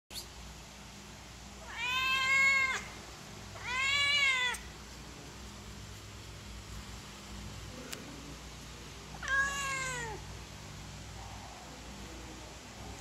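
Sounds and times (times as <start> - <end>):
cat meowing: 1.6 - 3.0, 3.6 - 4.7, 9.2 - 10.2.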